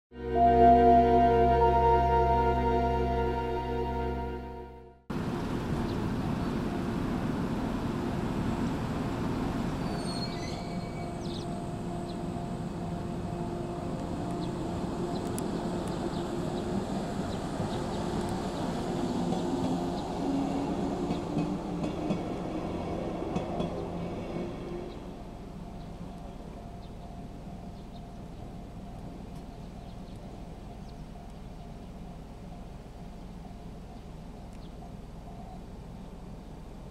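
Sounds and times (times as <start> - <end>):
level-crossing alarm ringing: 0.2 - 4.9
train wheels and motors rumbling: 5.1 - 36.9.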